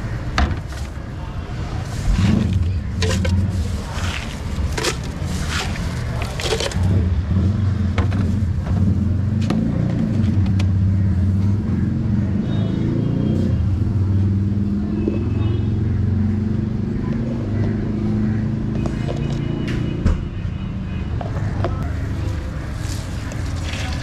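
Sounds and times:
low traffic rumble: 0:00.0 - 0:24.0
ice cubes clinking: 0:03.0 - 0:06.9.

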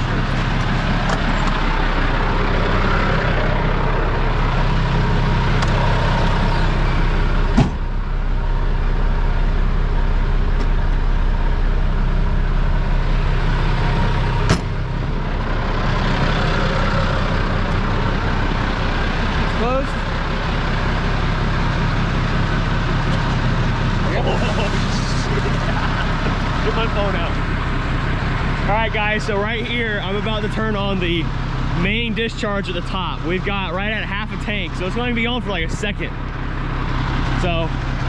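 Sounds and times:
fire truck engine idling: 0:00.0 - 0:38.0
cab doors shutting: 0:07.6 - 0:07.8.

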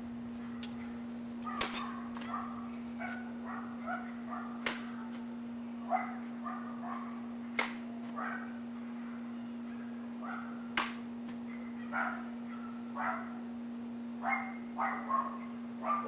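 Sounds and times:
steady low hum: 0:00.0 - 0:16.0
dog barking and yipping: 0:01.4 - 0:04.6, 0:05.9 - 0:07.2, 0:08.2 - 0:08.5, 0:10.2 - 0:10.6, 0:11.5 - 0:13.4, 0:14.2 - 0:16.0.

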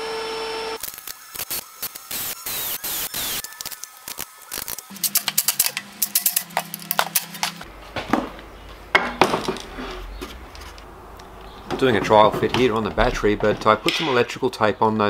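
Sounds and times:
metal clinks and knocks: 0:04.9 - 0:07.6.

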